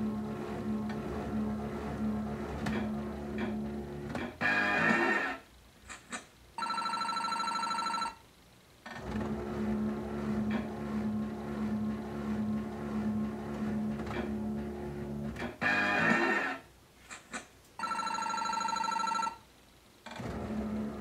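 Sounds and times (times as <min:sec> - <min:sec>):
electronic ringing trill: 0:17.8 - 0:19.4.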